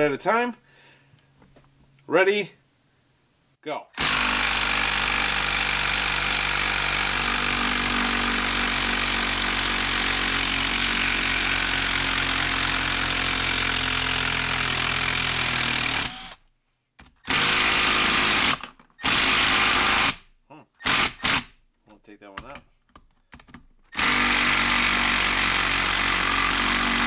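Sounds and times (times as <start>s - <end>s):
impact driver hammering: 17.2s - 20.2s, 23.9s - 27.0s.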